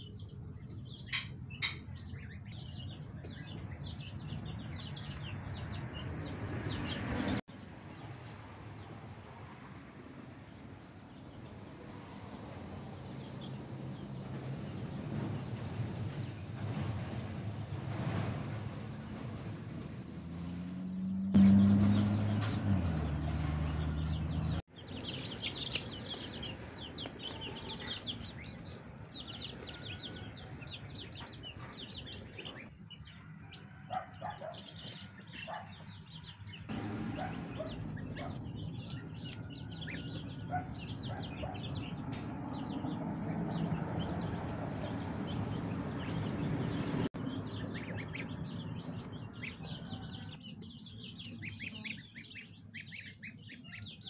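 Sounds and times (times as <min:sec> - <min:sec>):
goslings and ducklings peeping: 0:00.0 - 0:07.4, 0:23.7 - 0:54.0.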